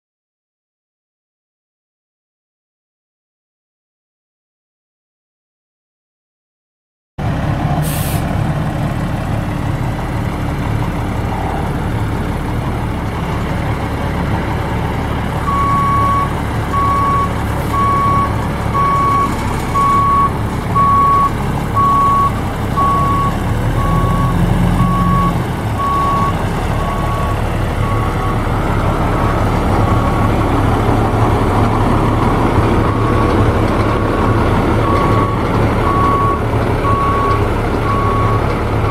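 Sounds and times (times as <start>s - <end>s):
diesel truck engine running: 7.2s - 38.9s
reversing alarm beeping: 15.4s - 30.2s, 32.8s - 34.1s, 34.8s - 38.9s.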